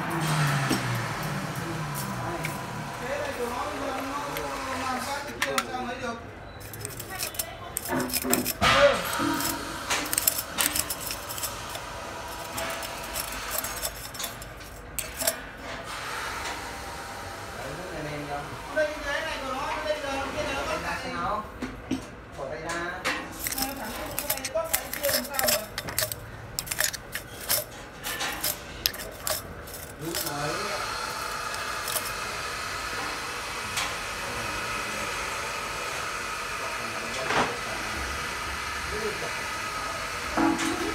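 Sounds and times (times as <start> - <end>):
metal swarf clinking: 6.6 - 15.5, 23.3 - 32.2
metal lathe humming: 6.7 - 15.6, 23.3 - 34.2.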